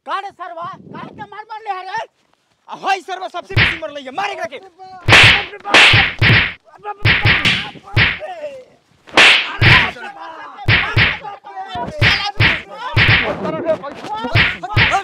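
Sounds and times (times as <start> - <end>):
punches and slaps landing: 3.5 - 3.8, 5.1 - 8.2, 9.1 - 9.9, 10.7 - 11.2, 12.0 - 13.4, 14.4 - 15.0.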